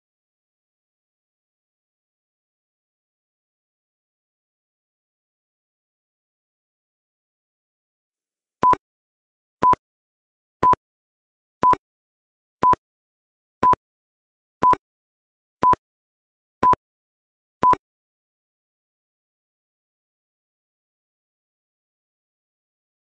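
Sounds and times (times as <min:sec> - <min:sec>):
short electronic beeps: 0:08.6 - 0:08.8, 0:14.6 - 0:14.8, 0:17.6 - 0:17.8.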